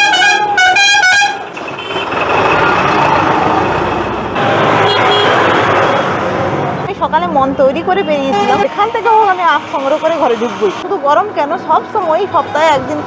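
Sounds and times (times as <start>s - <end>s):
vehicle horn tooting: 0.0s - 2.2s, 4.4s - 6.2s, 8.0s - 10.8s
road traffic noise: 0.0s - 13.0s.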